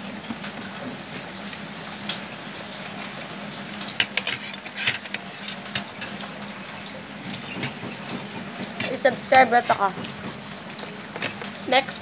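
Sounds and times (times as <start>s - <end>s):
cutlery clinking on plastic plates: 3.8s - 6.2s.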